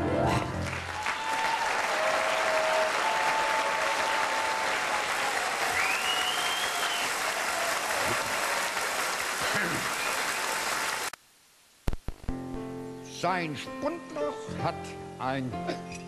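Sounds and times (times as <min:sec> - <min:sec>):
audience applauding: 0:00.3 - 0:11.2
whistles from audience: 0:05.6 - 0:07.2, 0:09.8 - 0:10.6.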